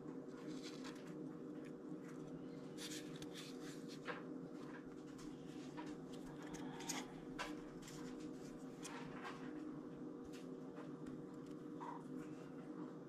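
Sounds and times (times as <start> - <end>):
bone scratching and clicking: 0.3 - 4.0.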